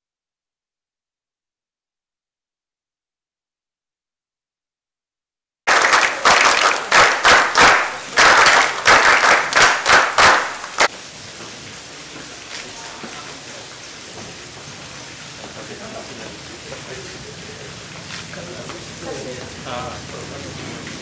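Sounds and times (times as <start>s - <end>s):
group applause: 5.7s - 10.9s
steady low hiss: 5.7s - 21.0s.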